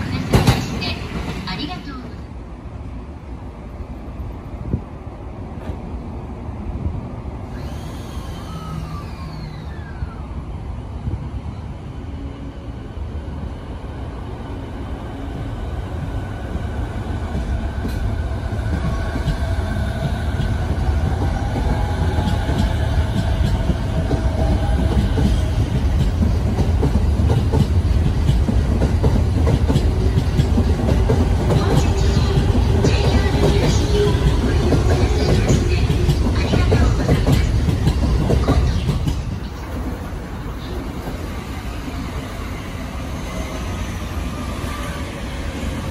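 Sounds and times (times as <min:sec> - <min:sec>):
train wheels clicking over rail joints: 0:17.3 - 0:39.7.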